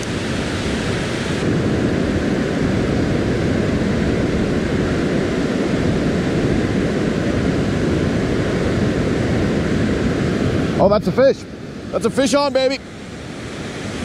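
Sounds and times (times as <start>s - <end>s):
waterfall and rapids rushing: 0.0s - 14.0s.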